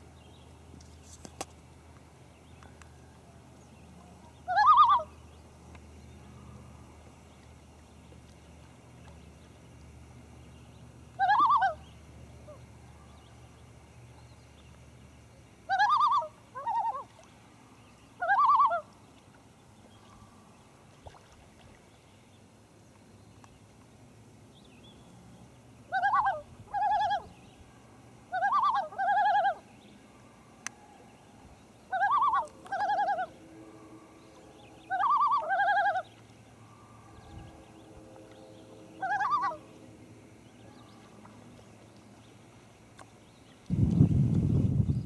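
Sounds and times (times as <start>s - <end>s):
loon tremolo calls: 2.6s - 14.3s, 15.6s - 19.0s, 25.7s - 44.1s.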